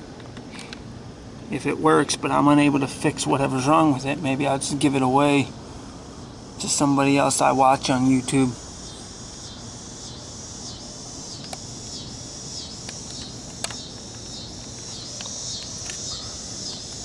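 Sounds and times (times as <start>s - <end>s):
crickets chirping: 0.0s - 17.0s
sharp clicks: 11.4s - 11.7s, 12.8s - 16.0s.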